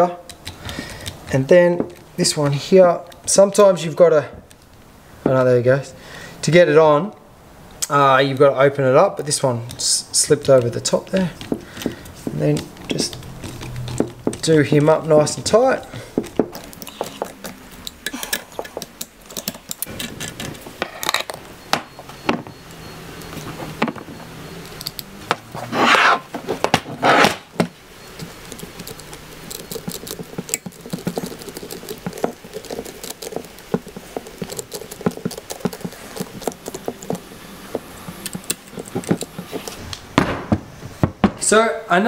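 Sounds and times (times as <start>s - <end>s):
hand tools clicking and clattering: 0.3s - 3.3s, 9.2s - 22.5s, 23.1s - 39.9s
rasping scrapes: 25.4s - 39.9s.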